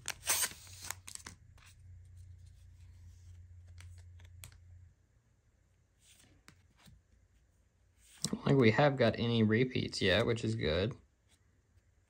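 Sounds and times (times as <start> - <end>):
card handling clicks and rustles: 0.0 - 4.6.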